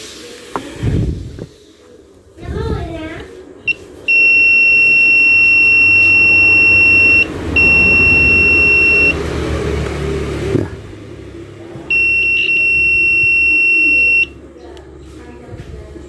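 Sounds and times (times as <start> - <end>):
multimeter continuity beep: 3.7 - 9.2, 11.9 - 14.4.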